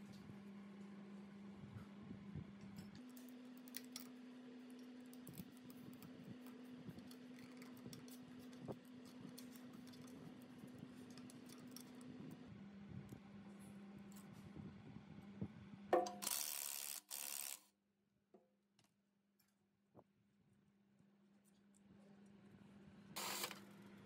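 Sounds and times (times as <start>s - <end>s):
steady low hum: 0.0s - 15.9s.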